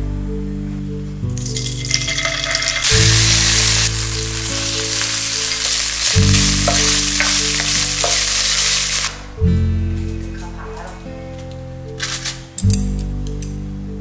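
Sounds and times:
oil sizzling in pan: 0:01.4 - 0:09.3.

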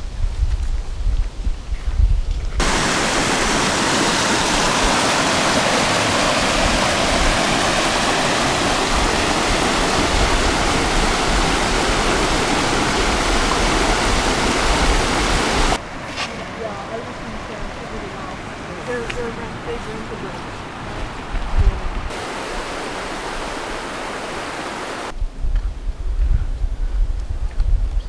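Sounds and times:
river rushing over rocks: 0:02.6 - 0:21.3, 0:22.1 - 0:25.1.

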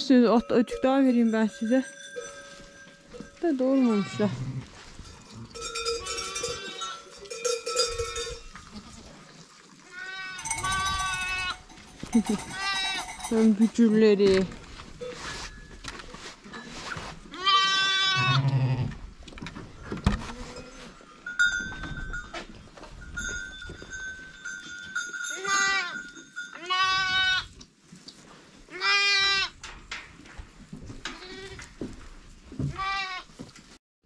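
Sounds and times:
sheep bleating: 0:09.9 - 0:11.6, 0:17.3 - 0:18.9, 0:26.6 - 0:27.5
steady ringing tone: 0:10.4 - 0:13.5.

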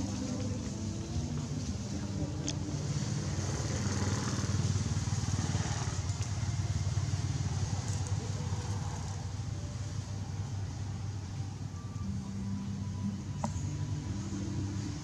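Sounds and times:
engine running steadily: 0:00.0 - 0:15.0.

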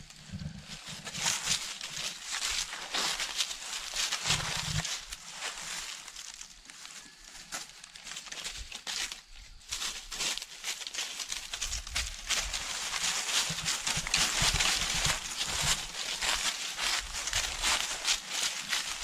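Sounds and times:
footsteps and hooves in dry leaves: 0:00.0 - 0:19.0.

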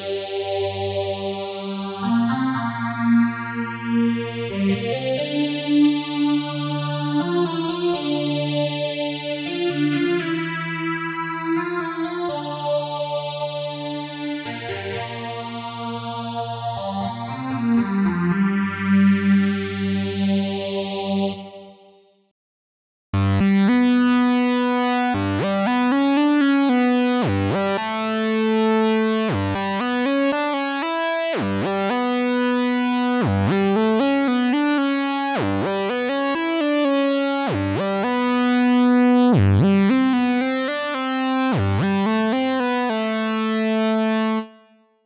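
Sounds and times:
sawtooth synthesizer melody: 0:23.4 - 0:26.8.

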